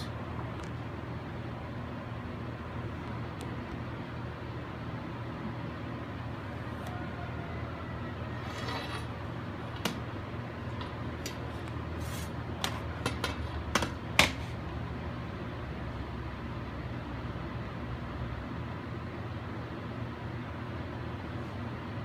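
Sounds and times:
steady shop hum: 0.0 - 22.0
scratch marking metal: 8.4 - 9.2.

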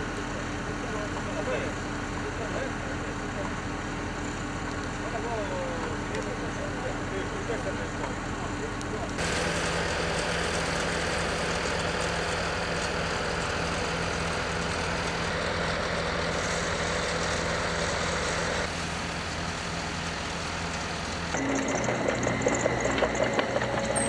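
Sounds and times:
heavy diesel machines running: 0.0 - 24.0
excavator digging: 21.2 - 24.0.

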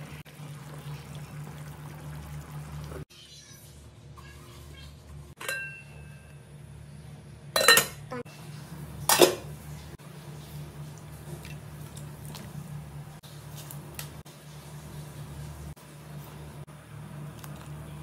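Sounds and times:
metal utensil clinking on pot: 5.4 - 6.2, 7.6 - 8.0.

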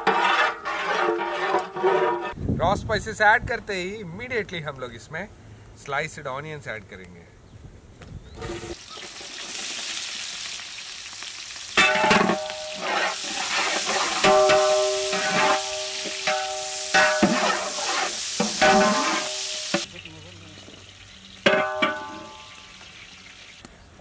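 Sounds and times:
metal ladle scraping a pot: 0.0 - 2.4, 11.8 - 19.9
onions sizzling in hot oil: 8.7 - 23.6.

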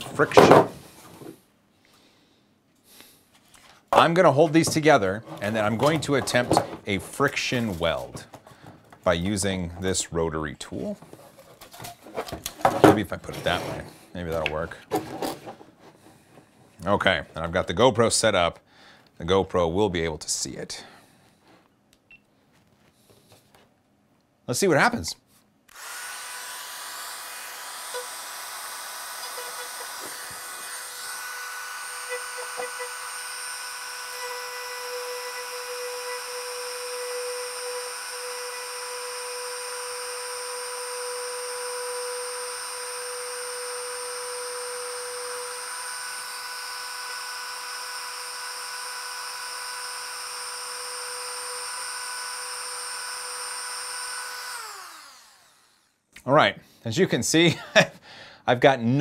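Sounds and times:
rotary tool whining: 25.7 - 56.0.

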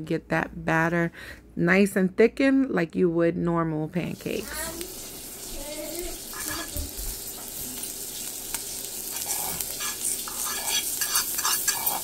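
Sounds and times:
butter sizzling in frying pan: 4.2 - 12.0
fork scraping pan: 6.3 - 6.7, 8.6 - 12.0.

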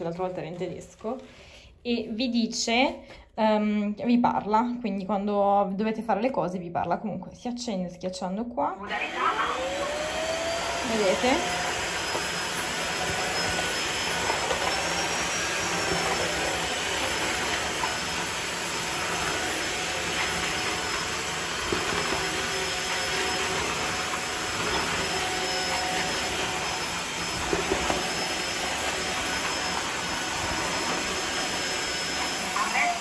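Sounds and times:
floor washer motor and suction: 8.8 - 33.0.

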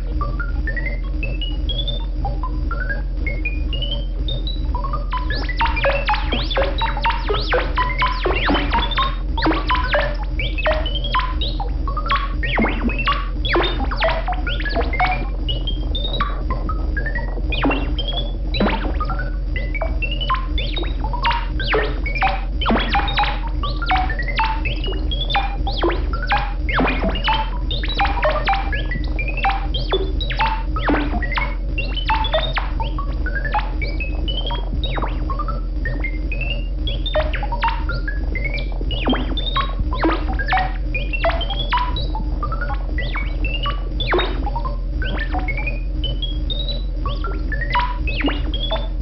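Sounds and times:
electronic synth chirps: 0.0 - 49.0
low synth drone: 4.8 - 37.6.

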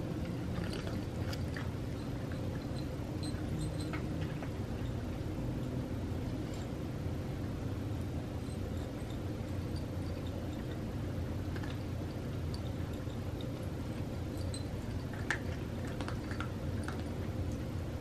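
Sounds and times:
steady low hum: 0.0 - 18.0
cats crunching dry kibble: 0.2 - 4.7, 9.6 - 17.7.

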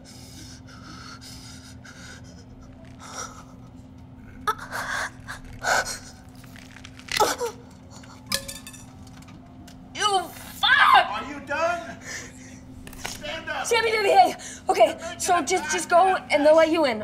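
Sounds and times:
steady low hum: 0.0 - 17.0
woman screaming: 10.6 - 11.3.

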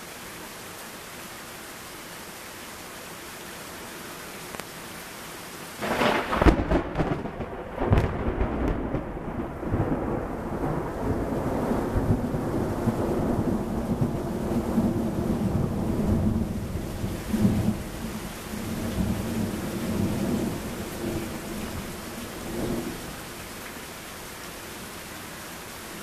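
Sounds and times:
heavy rain: 0.0 - 26.0
thunderclap crack: 5.8 - 11.3
low thunder rumble: 5.8 - 23.1.

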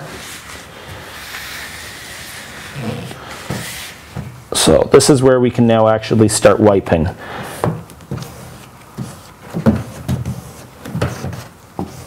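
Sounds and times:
squeegee rubbing on vinyl: 0.0 - 4.3, 7.6 - 12.0.

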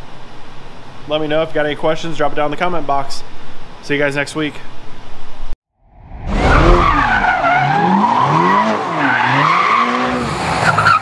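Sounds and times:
car engine revving: 6.2 - 11.0.

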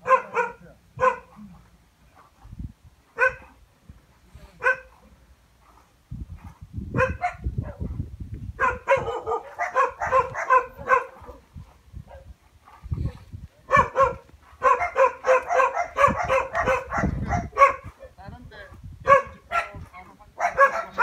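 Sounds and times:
dog barking: 0.0 - 1.5, 3.2 - 3.6, 4.6 - 5.0, 6.9 - 8.0, 8.6 - 11.4, 13.7 - 18.0, 19.0 - 21.0.

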